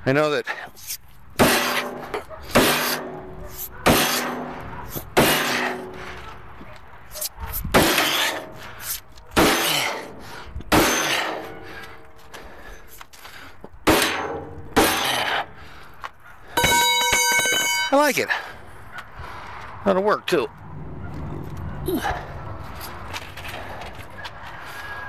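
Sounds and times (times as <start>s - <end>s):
hammer striking steel: 1.4s - 6.1s, 7.8s - 8.6s, 9.4s - 11.6s, 13.8s - 15.5s, 16.6s - 18.1s.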